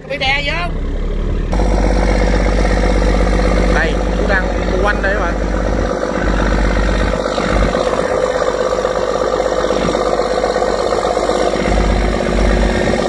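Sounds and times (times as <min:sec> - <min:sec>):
boat diesel engine running: 0:00.0 - 0:13.0.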